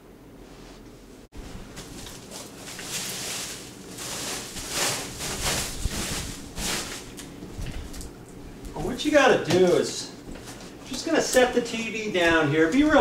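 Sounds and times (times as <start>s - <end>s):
plastic wrapping rustling: 1.4s - 8.9s.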